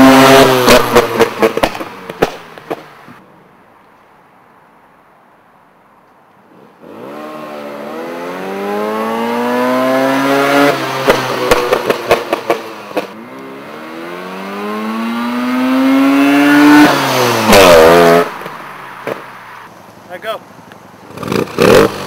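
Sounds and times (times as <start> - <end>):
rotary engine revving: 0.0 - 1.9, 6.8 - 18.4, 21.0 - 22.0
exhaust backfire pops: 0.3 - 3.2, 11.0 - 13.2, 17.4 - 19.3.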